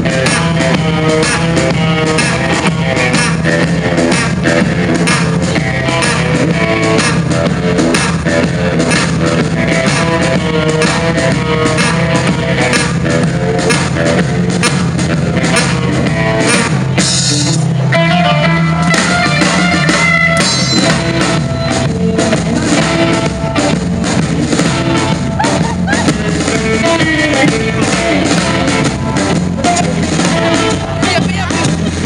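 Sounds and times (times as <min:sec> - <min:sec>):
small band playing live: 0:00.0 - 0:32.0
trumpet: 0:00.1 - 0:23.8.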